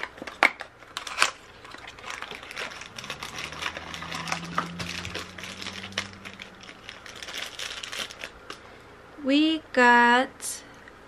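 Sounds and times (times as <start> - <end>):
cardboard box and plastic bag crackling: 0.0 - 8.7
low steady hum: 0.0 - 11.0.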